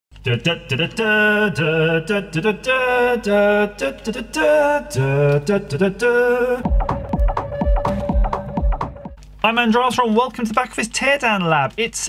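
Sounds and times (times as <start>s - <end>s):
person singing long notes: 0.2s - 8.6s.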